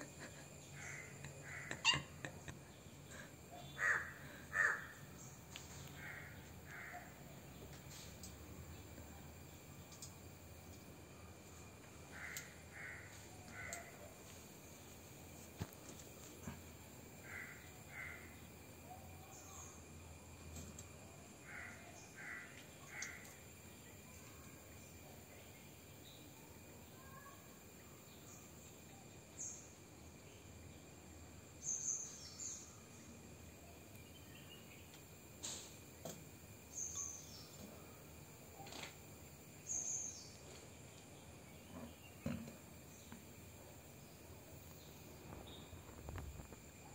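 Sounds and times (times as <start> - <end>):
faint bird calls: 0.0 - 8.1, 12.1 - 14.1, 17.2 - 19.7, 21.4 - 23.4, 26.9 - 27.5.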